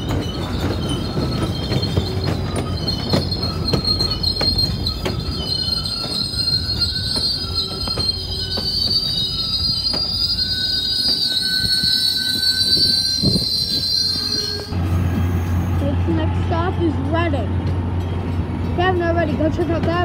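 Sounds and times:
wheels clicking over rail joints: 0:00.0 - 0:11.7
train wheels squealing: 0:00.0 - 0:16.2.

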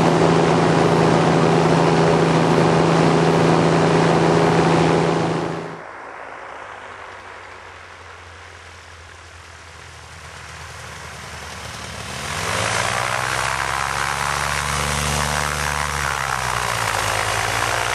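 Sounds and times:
ultralight engine and propeller passing: 0:00.0 - 0:17.9.

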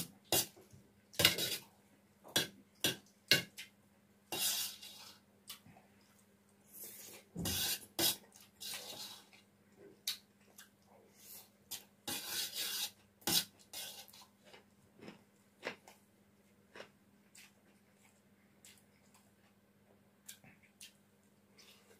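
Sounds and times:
spoon scraping metal plate: 0:01.2 - 0:01.6, 0:04.3 - 0:05.2, 0:12.1 - 0:14.2.

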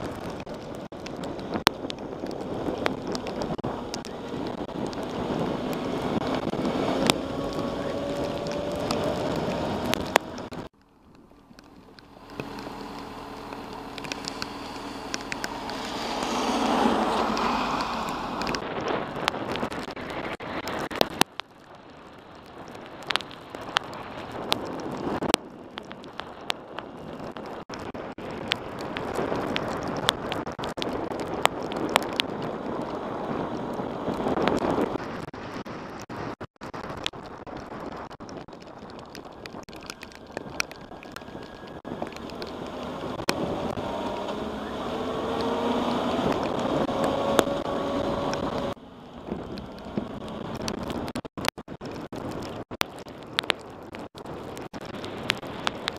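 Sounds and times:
wind rushing over microphone: 0:00.0 - 0:10.8, 0:12.0 - 0:55.9
raindrops ticking on camera: 0:00.0 - 0:55.9.

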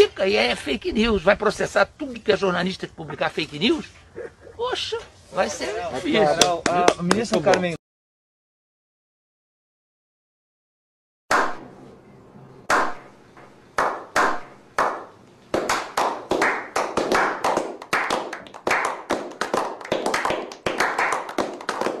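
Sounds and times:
group of people clapping: 0:06.3 - 0:07.7, 0:12.7 - 0:13.0, 0:13.8 - 0:22.0.

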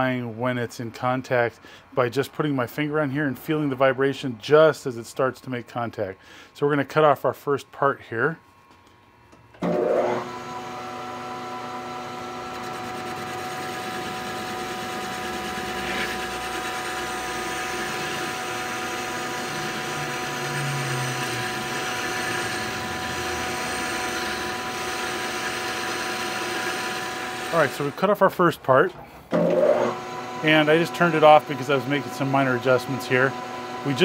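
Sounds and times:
metal lathe gear whine: 0:09.6 - 0:28.1, 0:29.3 - 0:34.0.

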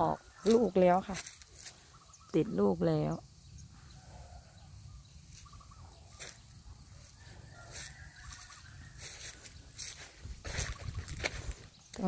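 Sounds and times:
distant fowl calling: 0:03.8 - 0:11.5.

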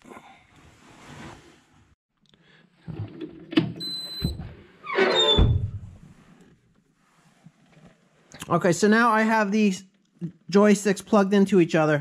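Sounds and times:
brief squeak: 0:03.8 - 0:05.6.

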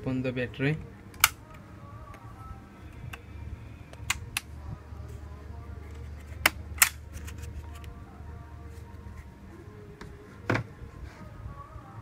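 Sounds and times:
low steady hum: 0:00.0 - 0:12.0
laptop battery latch clicks: 0:01.2 - 0:01.4.

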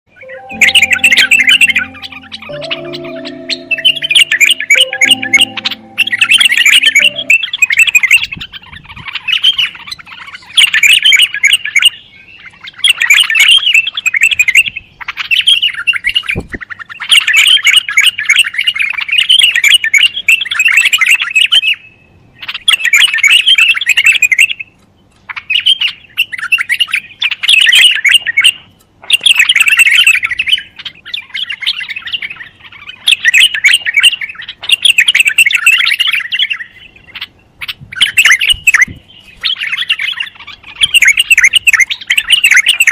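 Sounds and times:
bird chirping: 0:00.1 - 0:08.3, 0:25.4 - 0:42.9.

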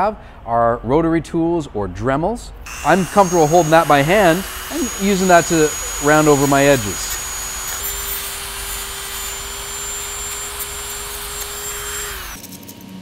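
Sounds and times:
rotary tool sanding metal: 0:02.7 - 0:12.4.

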